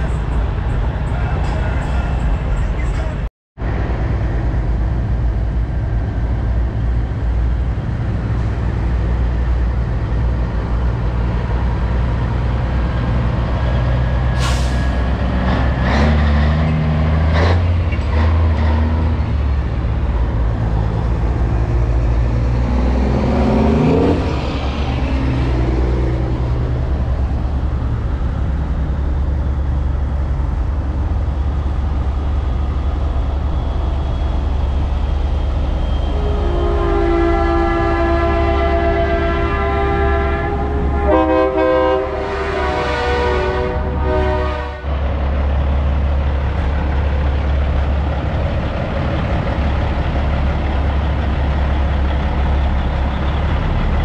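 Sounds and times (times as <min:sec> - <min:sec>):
diesel truck engines running: 0:00.0 - 0:54.0
air brake hisses: 0:14.4 - 0:15.0
engine revving: 0:15.2 - 0:20.0, 0:20.6 - 0:27.1.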